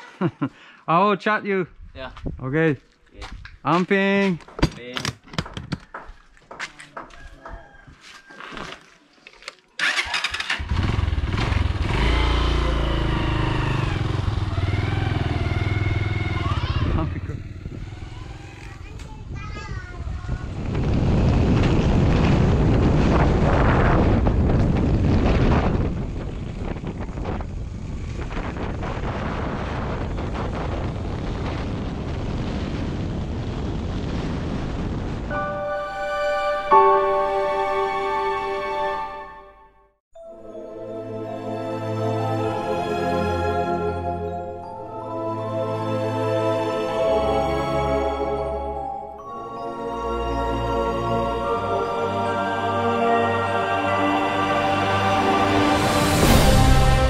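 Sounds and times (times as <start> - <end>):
wind buffeting microphone: 1.7 - 2.6, 15.9 - 35.4
motorcycle engine starting and running: 9.8 - 19.3.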